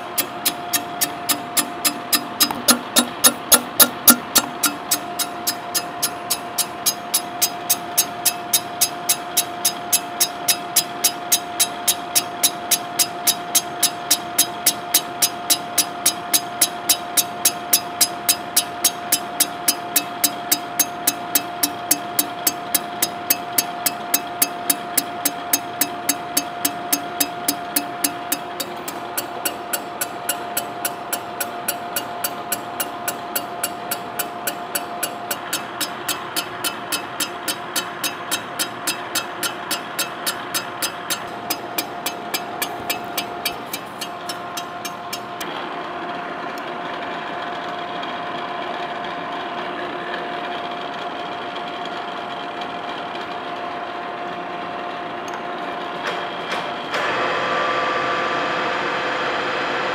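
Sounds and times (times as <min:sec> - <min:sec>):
cutter insert ticking on iron: 0:00.0 - 0:45.3
steady machine whine: 0:00.0 - 0:59.9.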